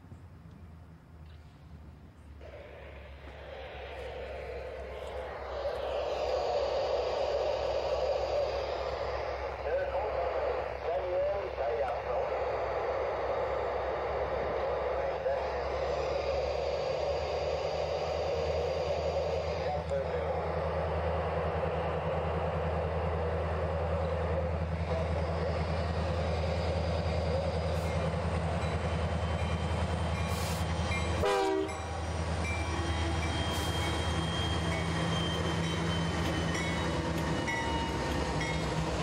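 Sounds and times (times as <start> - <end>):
locomotive engines rumbling: 0.0 - 39.0
wheels rolling on rail: 19.8 - 39.0.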